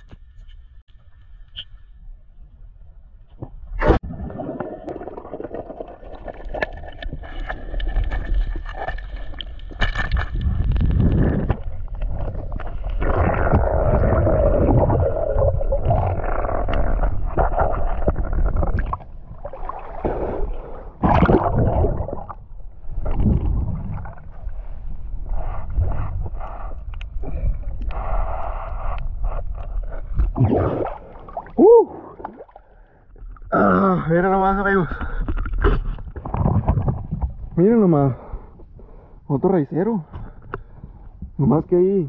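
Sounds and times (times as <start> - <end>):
water rushing and gurgling underwater: 3.4 - 33.6, 35.0 - 37.6.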